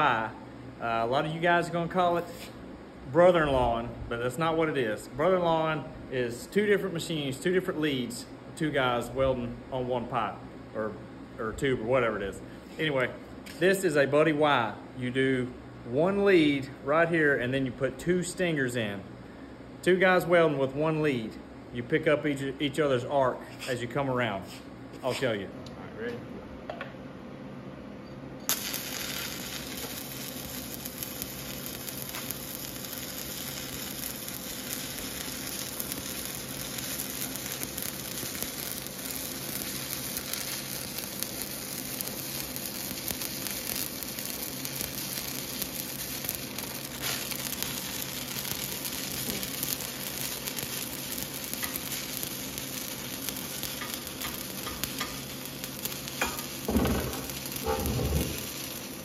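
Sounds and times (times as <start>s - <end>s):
welding arc frying crackle: 0.0s - 10.4s, 28.5s - 59.0s.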